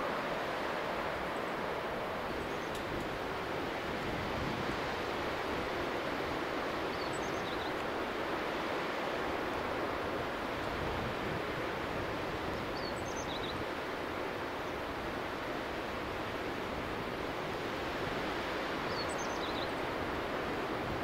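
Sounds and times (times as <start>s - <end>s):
waterfall rushing: 0.0s - 12.9s.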